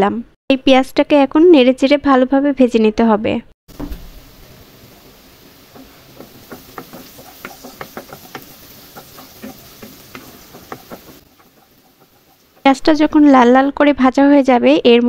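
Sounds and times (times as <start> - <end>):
oil sizzling: 3.7 - 13.8
spatula scraping a pan: 4.2 - 13.1.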